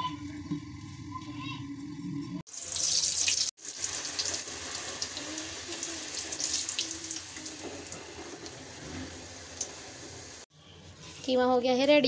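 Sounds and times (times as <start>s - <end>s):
deep-frying sizzle in hot oil: 2.5s - 10.5s.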